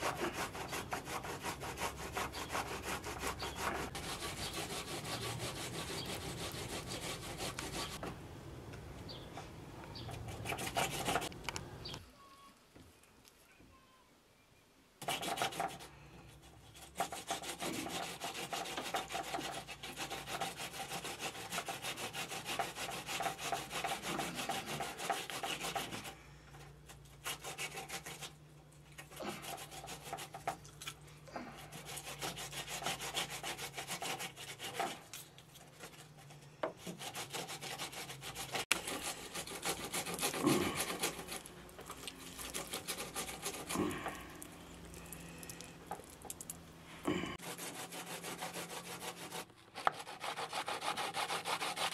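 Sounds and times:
knife scraping fish scales: 0:36.9 - 0:43.8.

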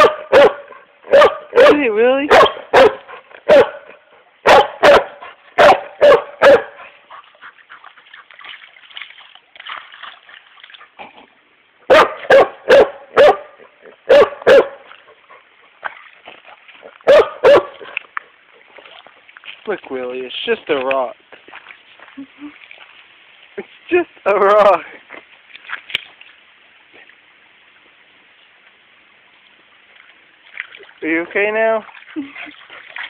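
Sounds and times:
dog barking: 0:00.0 - 0:07.0, 0:11.9 - 0:14.9, 0:17.0 - 0:18.0.

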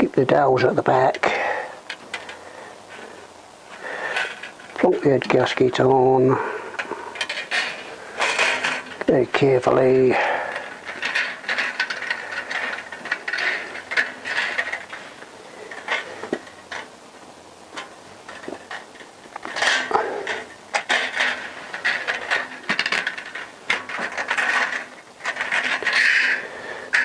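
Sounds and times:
gasket scraping and clicking on studs: 0:06.7 - 0:17.0, 0:17.6 - 0:27.0.

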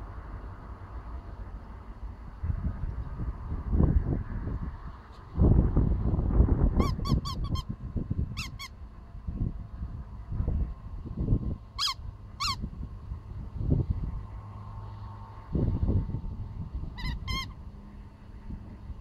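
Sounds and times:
squeaky dog toy squeaking: 0:06.8 - 0:07.7, 0:08.4 - 0:08.8, 0:11.8 - 0:12.6, 0:17.0 - 0:17.6.

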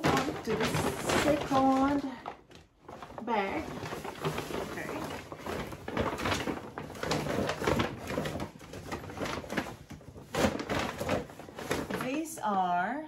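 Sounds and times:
shopping bag rustling: 0:00.0 - 0:12.4
products being handled: 0:00.0 - 0:12.6.

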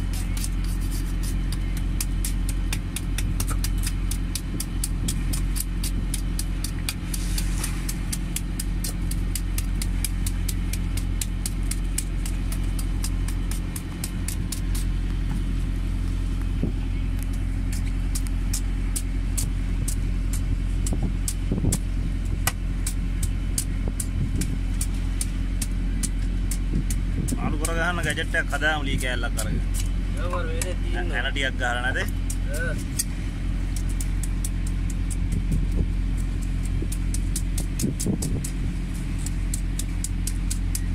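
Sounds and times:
knife scraping fish scales: 0:00.0 - 0:14.9
engine droning: 0:00.0 - 0:40.9.

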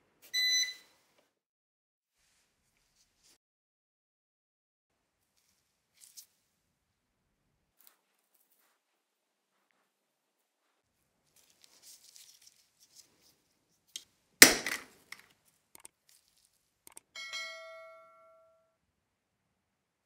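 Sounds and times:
small clicks: 0:15.1 - 0:16.2, 0:16.9 - 0:17.1
metal tool clinking ping: 0:17.2 - 0:18.7.

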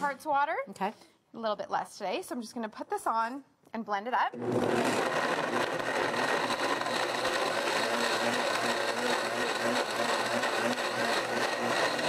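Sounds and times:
blender running at high speed: 0:04.4 - 0:12.0.

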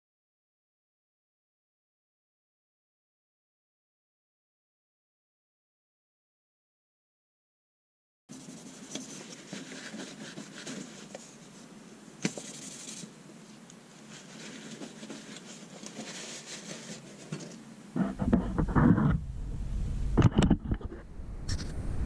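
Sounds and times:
sandpaper scratching on steel: 0:12.5 - 0:13.1
low rumbling noise: 0:17.8 - 0:22.0.

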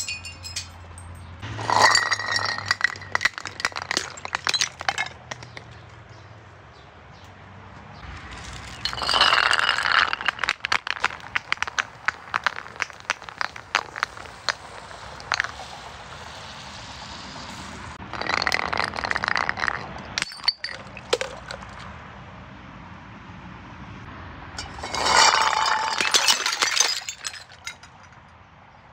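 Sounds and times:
glass breaking: 0:00.0 - 0:05.8, 0:08.3 - 0:15.7, 0:18.1 - 0:21.8, 0:24.6 - 0:28.2.

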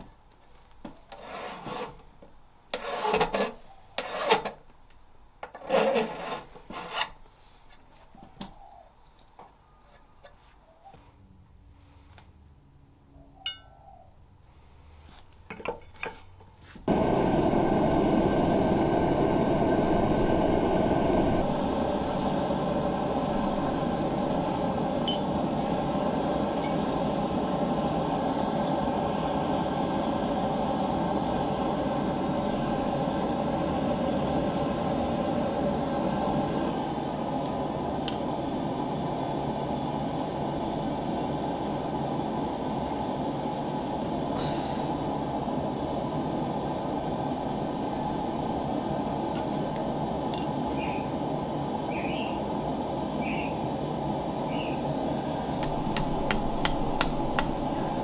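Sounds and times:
gas forge flame roaring: 0:01.1 - 0:04.5, 0:05.5 - 0:07.2, 0:16.8 - 0:58.0
steel tools clinking: 0:15.5 - 0:16.5.

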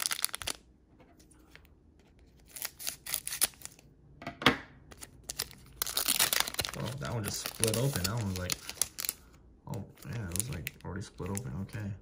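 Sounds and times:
foil wrapper crackling: 0:00.0 - 0:00.6, 0:04.9 - 0:11.9.

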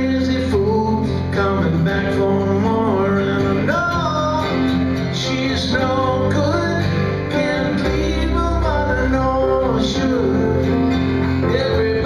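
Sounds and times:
man singing: 0:00.0 - 0:12.0
strummed acoustic guitar: 0:00.0 - 0:12.0.

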